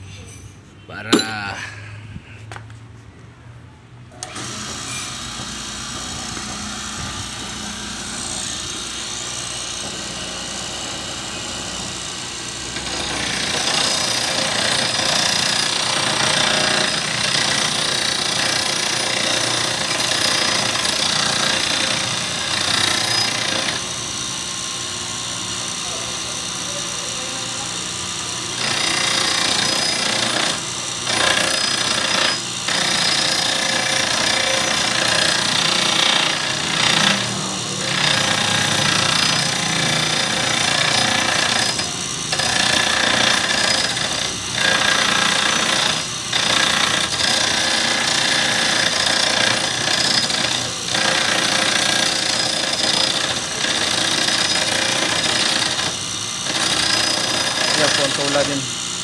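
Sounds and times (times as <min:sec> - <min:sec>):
motor humming: 0:04.1 - 0:13.8
grinding wheel rasping metal: 0:04.2 - 0:24.1, 0:25.6 - 0:58.9.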